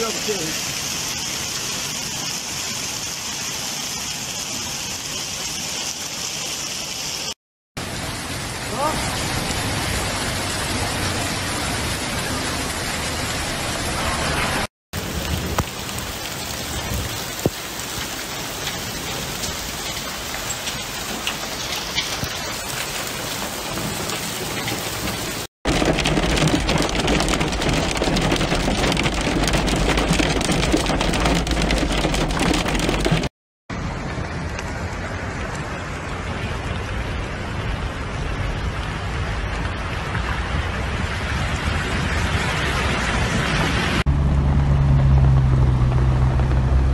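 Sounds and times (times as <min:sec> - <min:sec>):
heavy rain hissing: 0:00.0 - 0:30.6
heavy low rumble: 0:25.7 - 0:46.9.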